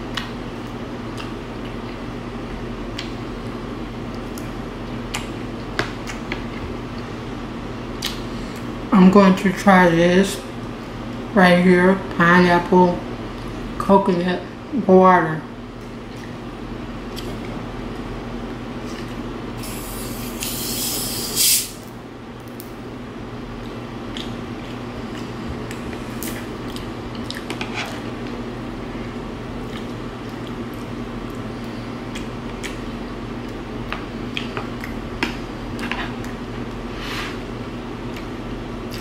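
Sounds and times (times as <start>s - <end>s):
quiet chewing: 1.1s - 2.1s, 23.6s - 28.4s, 29.6s - 36.8s.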